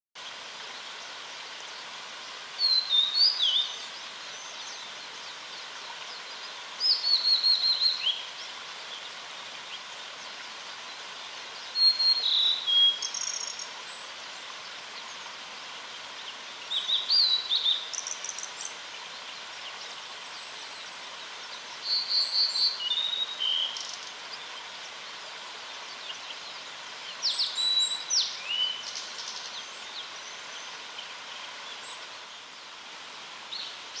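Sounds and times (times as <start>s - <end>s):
faint steady hiss: 0.2s - 34.0s
bird singing whistled phrases: 2.6s - 3.8s, 6.8s - 8.2s, 11.8s - 13.6s, 21.8s - 23.9s, 27.3s - 28.8s.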